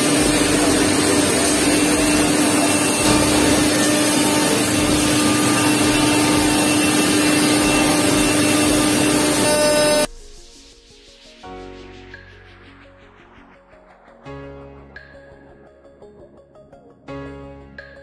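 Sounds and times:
router spindle whirring: 0.0 - 10.1.

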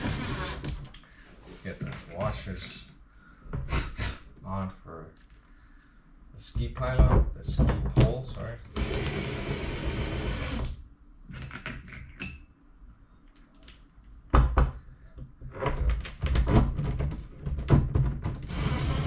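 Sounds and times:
cordless drill running: 0.0 - 0.7, 8.7 - 10.8, 18.4 - 19.0.

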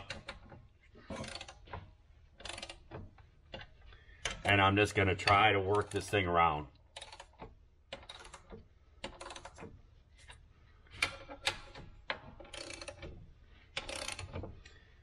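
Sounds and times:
hand ratchet clicking: 0.0 - 4.5, 6.9 - 9.8, 10.9 - 14.8.

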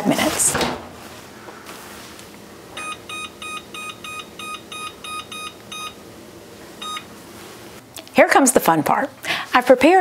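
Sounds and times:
oven control panel beeping: 2.7 - 6.0, 6.8 - 7.1.

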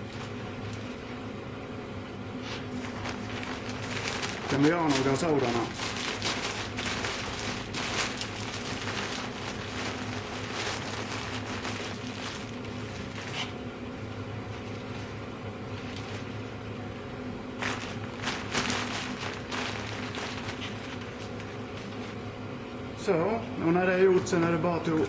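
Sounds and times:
fan hum: 0.0 - 25.0
newspaper rustling and crackling: 2.6 - 13.6, 15.8 - 16.4, 17.6 - 22.2.

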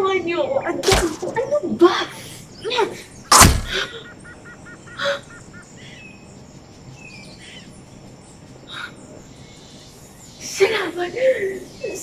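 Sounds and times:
faint bird calls: 0.4 - 12.0
sharp hit: 3.3 - 3.9.

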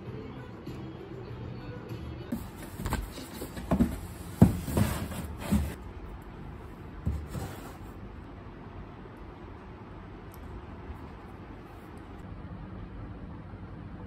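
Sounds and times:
cardboard box knocks and thumps: 2.3 - 5.8.

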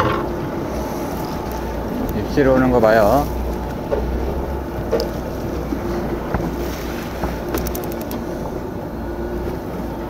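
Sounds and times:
boat engine humming: 0.0 - 10.0
waves washing against hull: 2.7 - 10.0
rapid high ticks: 7.5 - 8.2.

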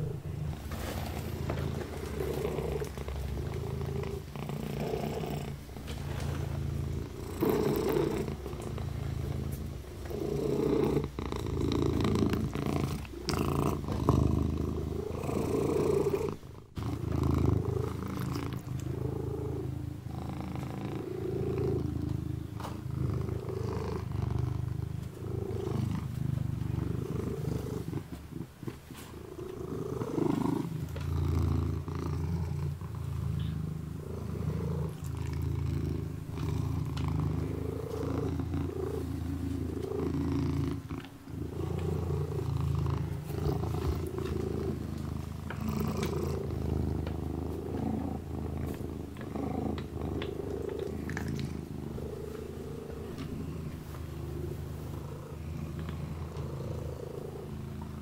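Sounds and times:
kitten purring: 0.0 - 58.0
licking and paw-rubbing: 33.4 - 58.0.

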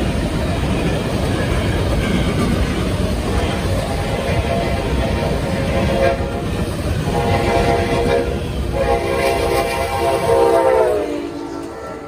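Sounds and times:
freight train rumble and wheel noise: 0.0 - 12.0
train horn blast: 3.8 - 12.0.

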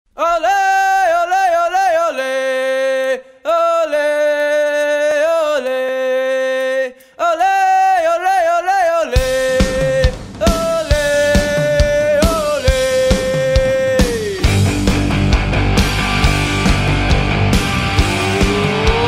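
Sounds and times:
person chanting long notes: 18.0 - 19.0.

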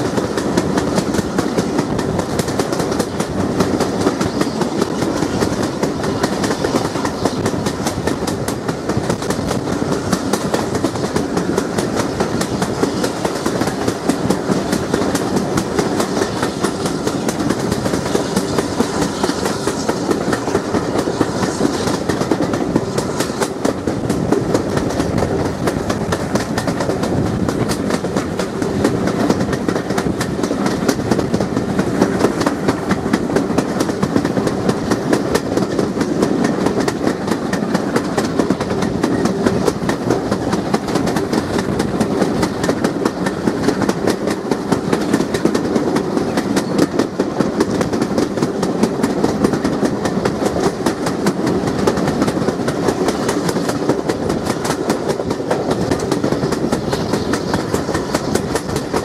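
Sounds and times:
steam locomotive working: 0.0 - 59.0
train wheels clattering over rail joints: 0.0 - 59.0.

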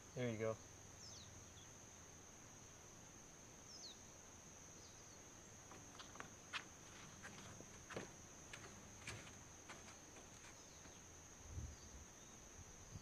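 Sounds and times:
insect chorus: 0.0 - 13.0
faint bird chirps: 0.1 - 2.1, 3.6 - 5.3.

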